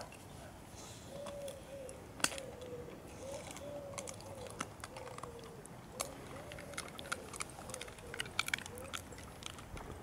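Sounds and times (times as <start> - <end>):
dogs crunching and chewing: 2.2 - 10.0.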